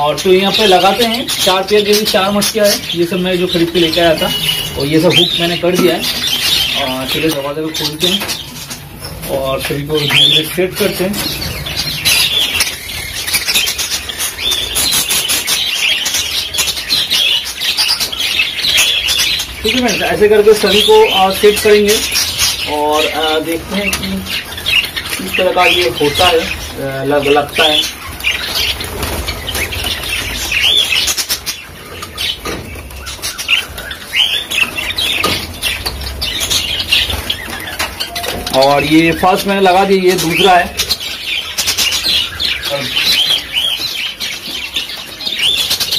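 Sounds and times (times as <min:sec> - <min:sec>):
budgerigars chirping: 0:00.0 - 0:45.9
wings fluttering: 0:23.4 - 0:45.9.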